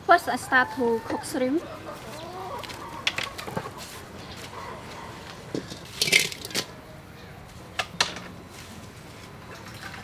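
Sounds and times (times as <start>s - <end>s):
shrimp clattering into metal pot: 5.7s - 6.7s.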